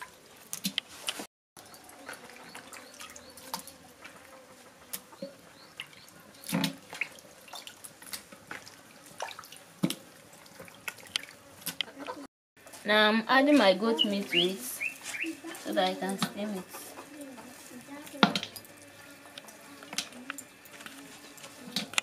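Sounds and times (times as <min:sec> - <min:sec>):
water drips and splashes: 0:00.0 - 0:11.8.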